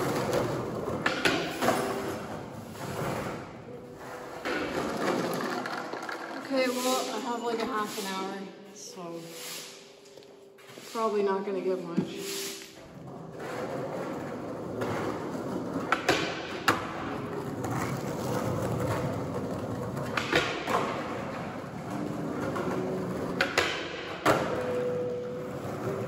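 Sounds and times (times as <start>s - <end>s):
skateboard clacks and thuds: 0.0s - 3.5s, 4.3s - 6.5s, 13.3s - 26.0s
skateboard wheels rolling on concrete: 0.0s - 7.1s, 12.0s - 26.0s.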